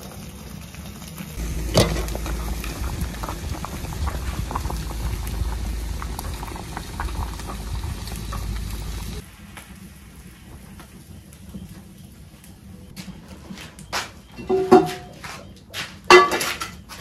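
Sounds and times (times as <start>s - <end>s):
soup boiling in a pot: 0.0s - 12.7s
fire popping: 0.0s - 17.0s.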